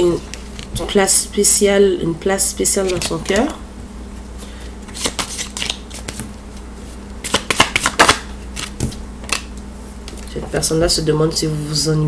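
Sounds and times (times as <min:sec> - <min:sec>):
cards being shuffled: 0:04.8 - 0:06.6, 0:07.2 - 0:09.5.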